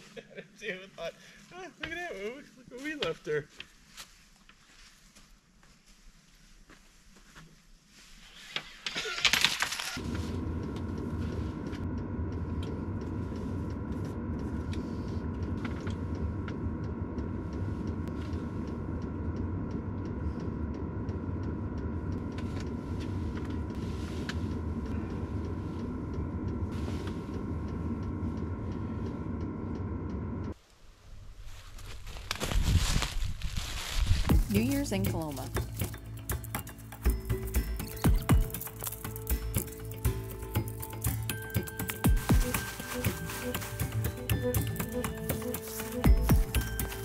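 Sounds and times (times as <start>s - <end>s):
air heater blower roar: 10.0s - 30.6s, 34.3s - 47.0s.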